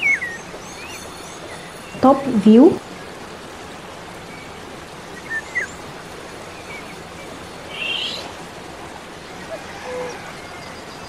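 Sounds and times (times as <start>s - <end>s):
steady background hiss: 0.0s - 11.0s
bird chirps: 7.7s - 8.3s.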